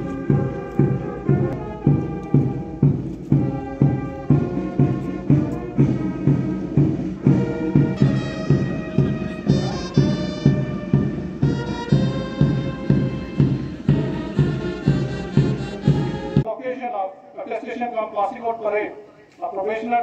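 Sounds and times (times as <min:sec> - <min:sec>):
steady drum beat: 0:00.0 - 0:16.5
sustained brass: 0:03.4 - 0:16.4.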